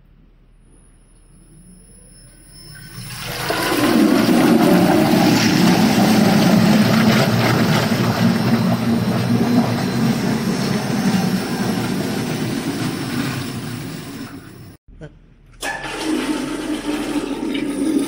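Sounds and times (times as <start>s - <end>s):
water churning and splashing: 2.9s - 14.4s, 15.8s - 18.0s
mixer motor hum: 3.0s - 14.8s.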